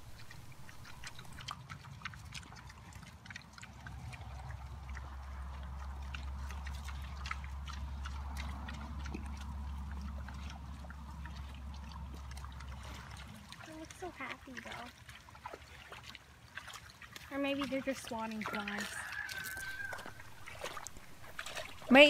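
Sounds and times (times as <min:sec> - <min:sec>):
low steady rumble: 0:00.0 - 0:14.9.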